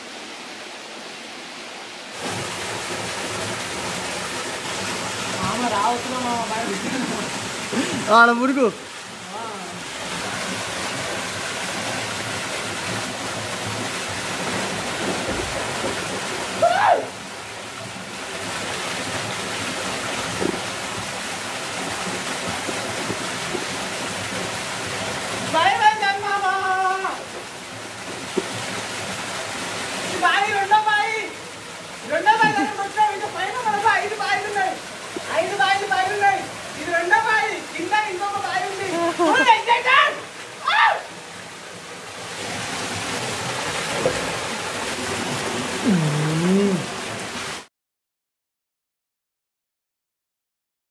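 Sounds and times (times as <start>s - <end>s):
waterfall pouring into pool: 0.0s - 47.7s
man calling out: 32.1s - 34.8s, 45.8s - 46.9s.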